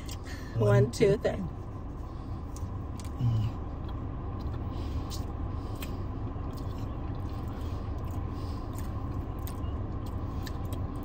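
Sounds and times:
car idling: 0.0s - 11.0s
chewing clicks: 3.8s - 11.0s.

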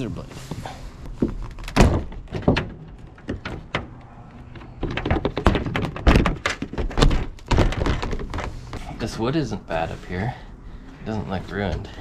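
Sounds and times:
roof vent knocks and scrapes: 1.1s - 8.8s.

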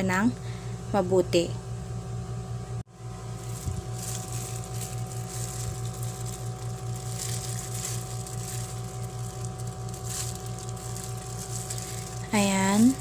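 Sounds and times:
steady mechanical hum: 0.0s - 13.0s
plastic glove rustling: 3.2s - 13.0s.

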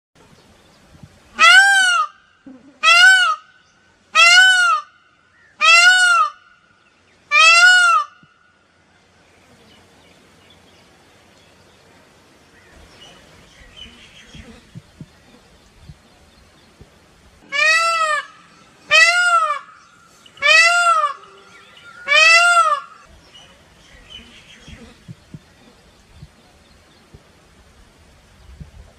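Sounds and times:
peacock calling: 1.3s - 8.7s, 17.4s - 26.3s.

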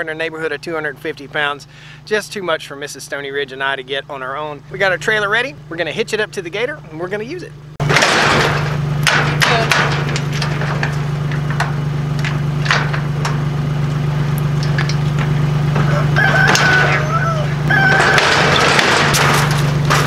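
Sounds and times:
engine idling: 0.0s - 20.0s
metal clanks of trailer hitch: 7.8s - 20.0s
rooster crowing: 15.8s - 18.4s.

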